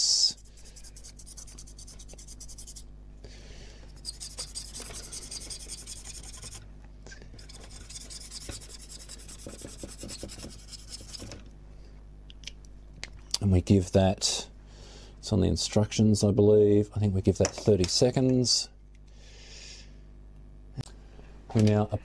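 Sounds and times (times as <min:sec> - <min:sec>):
felt tip scratching on plastic: 0:00.8 - 0:02.9, 0:04.0 - 0:06.6, 0:07.4 - 0:11.4.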